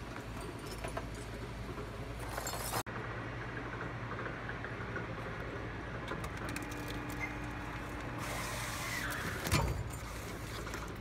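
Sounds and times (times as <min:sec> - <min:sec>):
cable stripping machine humming: 0:03.6 - 0:11.0.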